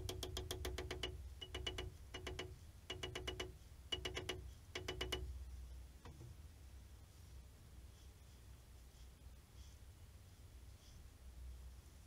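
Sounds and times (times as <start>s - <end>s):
hammer tapping on metal: 0.0s - 5.4s.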